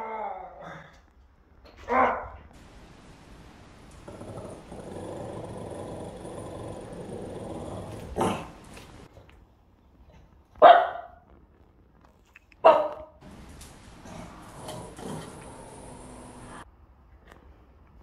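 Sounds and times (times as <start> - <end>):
dog barking: 1.9 - 2.4, 10.6 - 11.3, 12.6 - 13.2
dog growling low: 3.9 - 9.1, 13.7 - 16.6.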